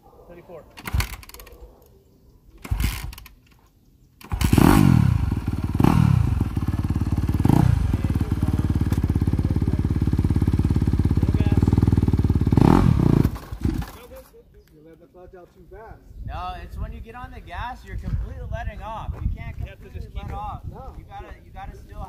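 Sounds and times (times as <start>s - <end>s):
dirt bike engine starting and revving: 0.8s - 1.5s, 2.6s - 3.4s, 4.2s - 14.1s.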